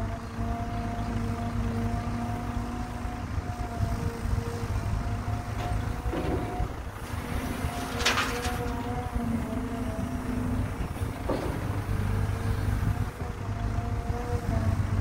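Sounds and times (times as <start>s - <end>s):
excavator diesel rumble: 0.0s - 15.0s
hydraulic humming: 0.0s - 15.0s
soil rushing into truck bed: 6.0s - 9.0s.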